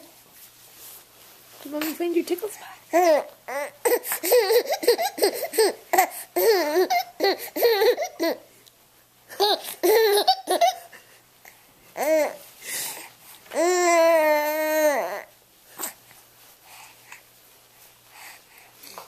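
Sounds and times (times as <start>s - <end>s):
baby laughing: 2.9s - 8.5s, 9.3s - 11.0s.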